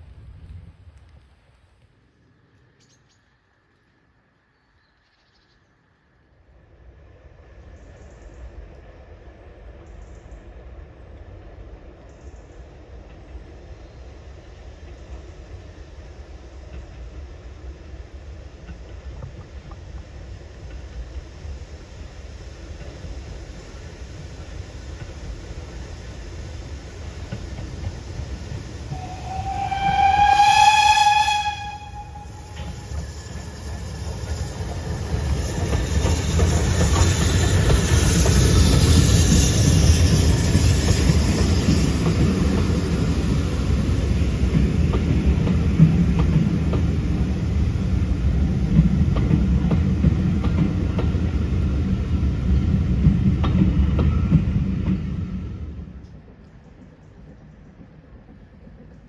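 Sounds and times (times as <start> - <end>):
train passing rumble: 0.0 - 59.0
steam locomotive whistle: 28.9 - 34.5
wheels clicking over rail joints: 32.5 - 43.5.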